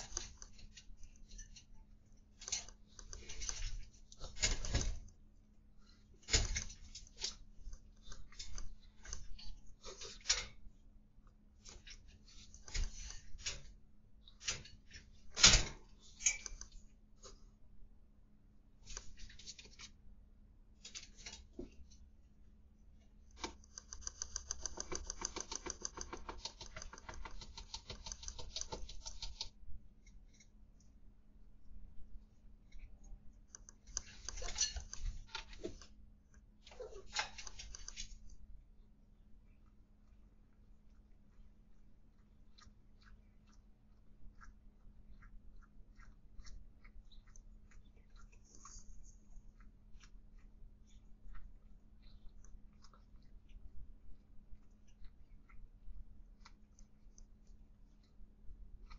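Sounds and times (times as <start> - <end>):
steady low hum: 0.0 - 58.9
rapid even ticking: 23.3 - 29.5.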